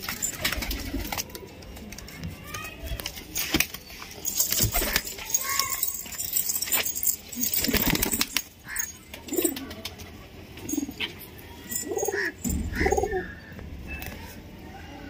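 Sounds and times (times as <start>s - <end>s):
pigeon wings flapping: 0.0s - 2.2s, 4.4s - 5.6s, 7.4s - 10.8s
pigeons cooing: 11.8s - 13.5s.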